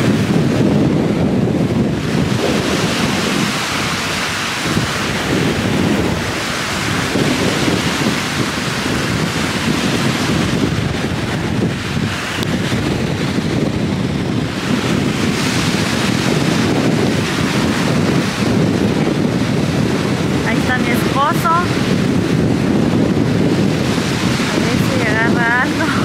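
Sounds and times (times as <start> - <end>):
waves breaking on stony shore: 0.0 - 26.0
wind buffeting microphone: 0.0 - 26.0.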